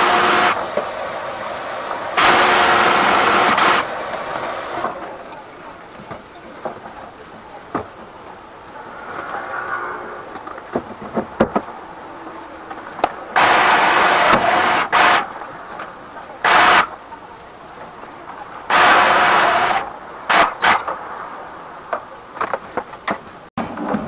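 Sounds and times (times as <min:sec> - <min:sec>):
drain cleaner motor whine: 0:00.0 - 0:05.0, 0:13.4 - 0:15.2.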